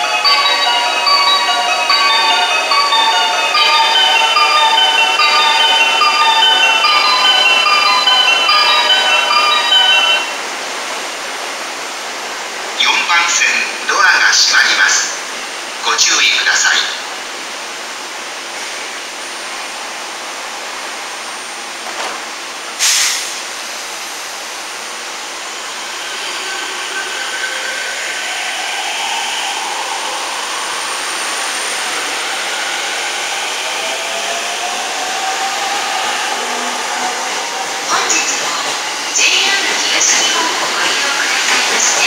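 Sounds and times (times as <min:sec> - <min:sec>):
train air hiss: 0:22.7 - 0:24.7.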